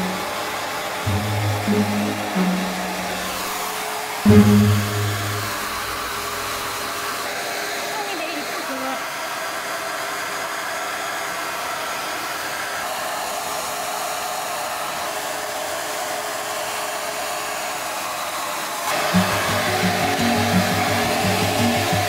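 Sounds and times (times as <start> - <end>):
hair dryer blowing: 0.0 - 22.0
music with a beat: 19.1 - 22.0.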